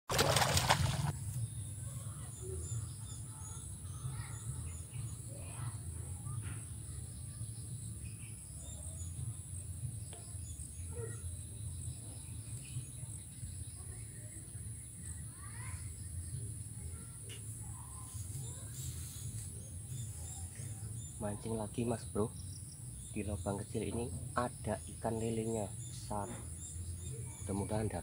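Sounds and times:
fish splashing and thrashing: 0.1 - 1.2
high insect drone: 0.3 - 28.0.

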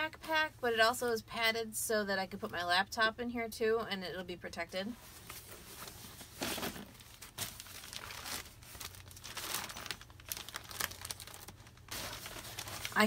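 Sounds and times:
garment bag rustling: 5.1 - 13.0.

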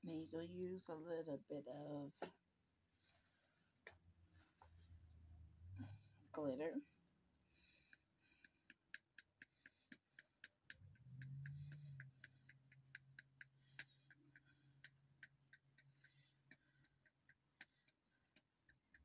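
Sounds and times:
faint low hum: 0.0 - 8.6, 9.2 - 19.0
clock ticking: 10.2 - 19.0.

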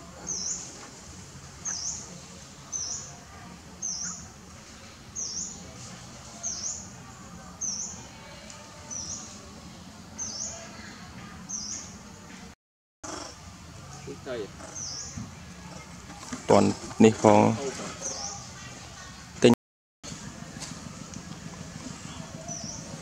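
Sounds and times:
faint outdoor background: 0.0 - 23.0
bird chirping: 14.6 - 15.3, 22.0 - 23.0.

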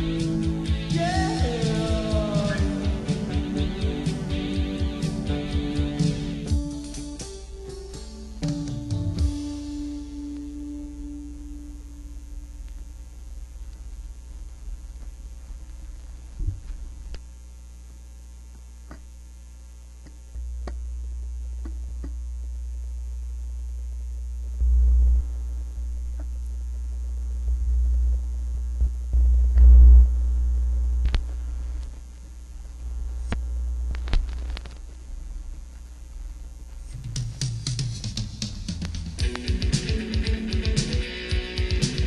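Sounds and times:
low mains hum: 0.0 - 42.0
record clicks: 16.5 - 17.3, 18.5 - 19.2, 21.6 - 22.2, 26.0 - 26.4, 31.0 - 35.9, 36.7 - 40.6.

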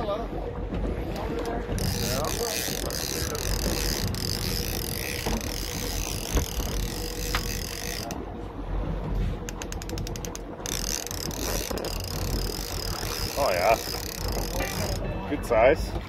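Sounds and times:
fishing reel ratchet clicking: 1.2 - 8.2, 9.5 - 15.0
steady hum: 1.2 - 15.4.

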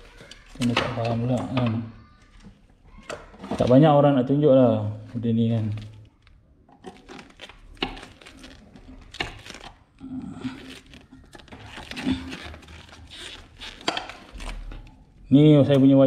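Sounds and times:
handling clicks taps and rustling: 0.0 - 3.9.

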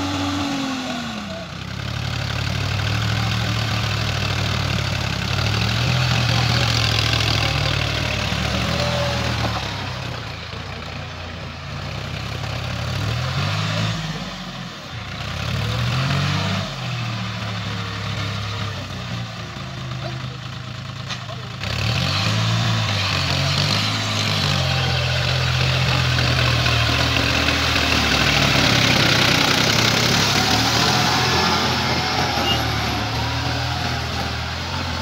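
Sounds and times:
tractor engine running under load: 0.0 - 35.0
tiller rushing through soil: 15.2 - 35.0.

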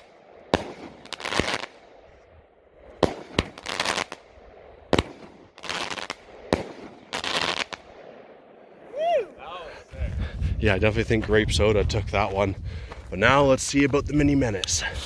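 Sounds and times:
firework bangs: 0.0 - 2.0, 2.9 - 9.0.

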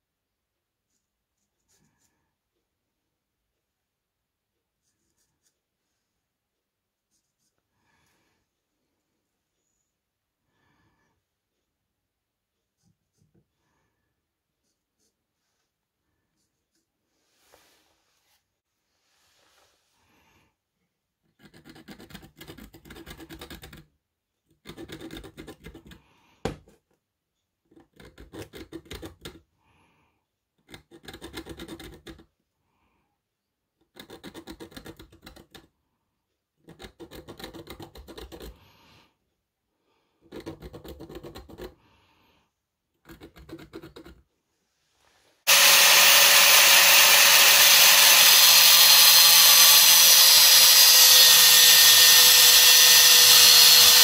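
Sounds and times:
angle grinder cutting steel: 45.5 - 54.0.

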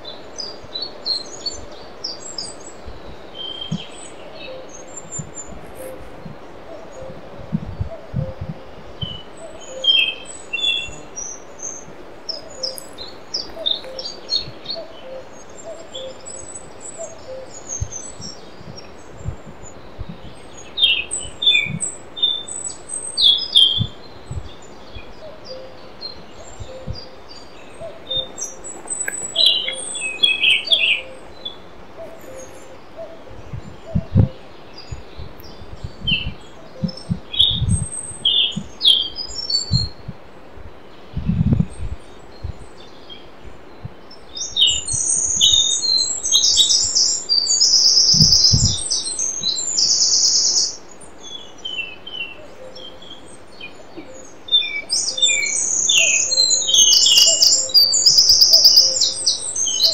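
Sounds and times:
small birds chirping and trilling: 0.0 - 40.1, 40.8 - 59.9
low bird call: 25.0 - 35.1, 51.9 - 59.9.

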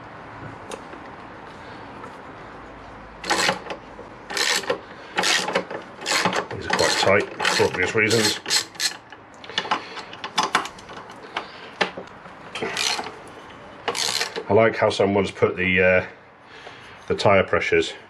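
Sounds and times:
ratchet pawl clicking: 3.2 - 9.1, 12.7 - 13.1, 13.9 - 14.4.

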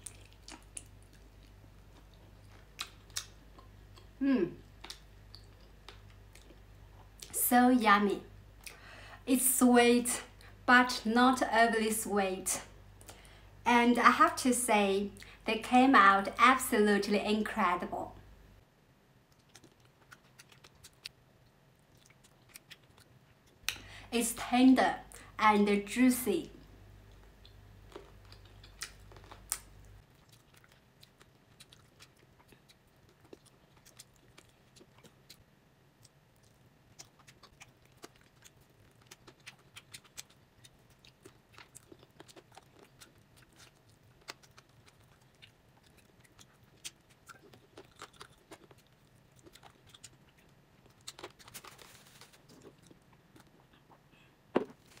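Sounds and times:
person chewing: 0.0 - 7.3, 19.3 - 23.8, 27.0 - 35.4, 36.0 - 54.3.

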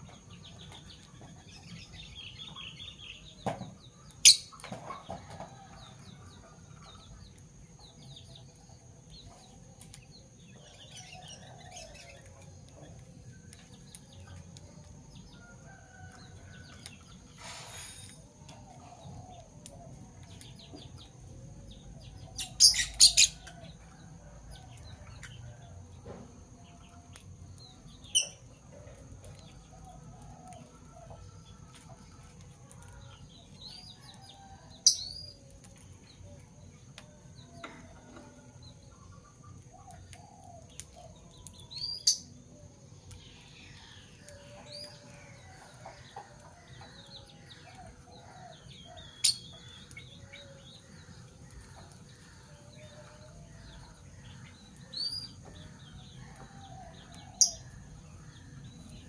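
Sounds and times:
lovebirds chirping: 6.4 - 25.7, 26.6 - 59.0.

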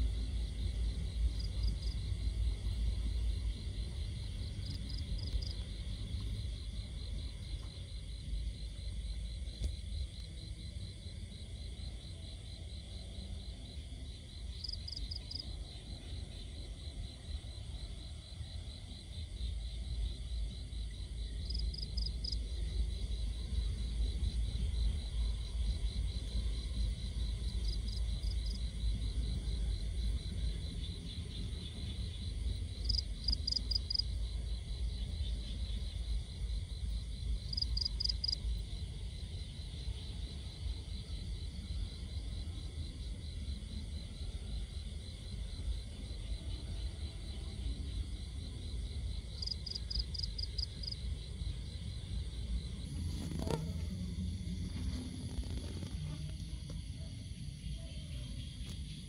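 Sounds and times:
higher insect chirps: 0.1 - 59.0
insects trilling: 13.0 - 59.0.

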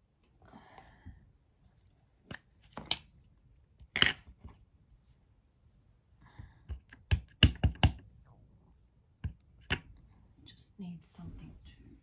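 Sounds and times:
clicks and taps of stamping supplies: 6.6 - 8.1.

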